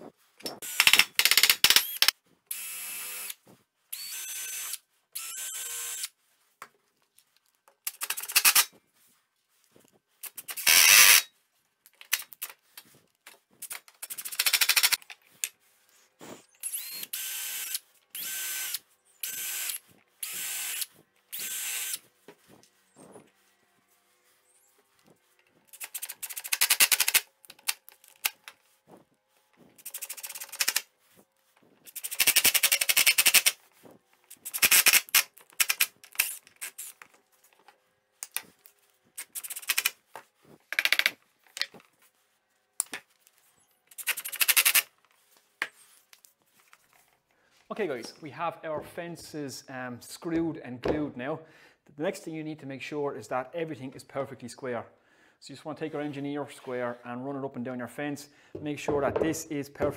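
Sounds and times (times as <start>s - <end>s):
cordless drill driving screws: 0.6s - 6.1s, 10.5s - 11.3s, 16.6s - 22.0s.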